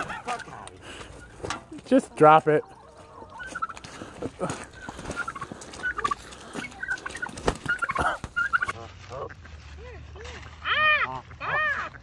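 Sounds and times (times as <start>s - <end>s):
turkey gobbling: 0.0s - 12.0s.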